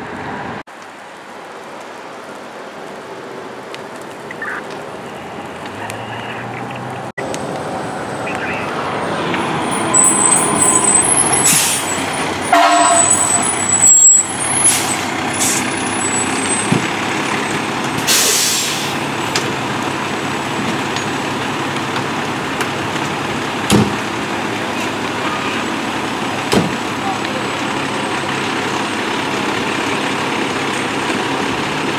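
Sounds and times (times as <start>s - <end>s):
diesel engine running: 4.4s - 31.9s
air brakes hissing: 10.0s - 12.1s, 12.7s - 15.8s, 18.0s - 19.0s
short horn toot: 12.5s - 13.5s.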